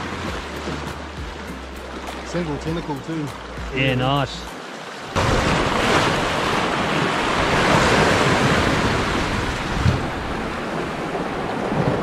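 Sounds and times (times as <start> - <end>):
surf washing against rocks: 0.0 - 12.0
wind on microphone: 5.2 - 12.0.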